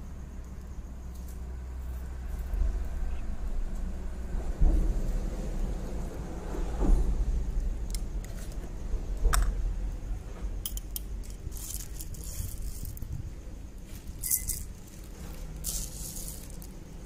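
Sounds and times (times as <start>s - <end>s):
low steady rumble: 0.0s - 17.0s
coffee beans rattling: 10.6s - 13.2s, 13.8s - 17.0s
spoon clinking on glass: 14.2s - 14.7s.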